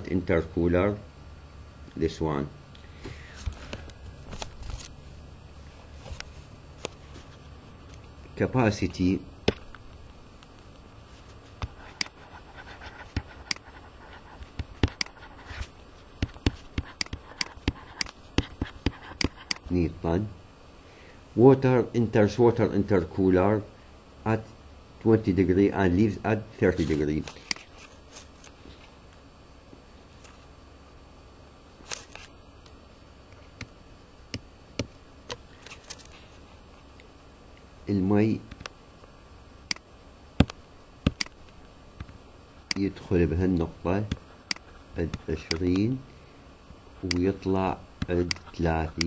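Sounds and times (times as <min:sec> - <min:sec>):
faint steady hum: 0:00.0 - 0:49.0
computer mouse clicking: 0:11.6 - 0:12.2, 0:13.1 - 0:13.8, 0:14.4 - 0:15.2, 0:16.2 - 0:19.7, 0:40.4 - 0:41.4, 0:44.1 - 0:45.9, 0:47.0 - 0:47.4, 0:48.0 - 0:49.0
stylus tapping on tablet: 0:16.2 - 0:19.6, 0:40.4 - 0:41.3.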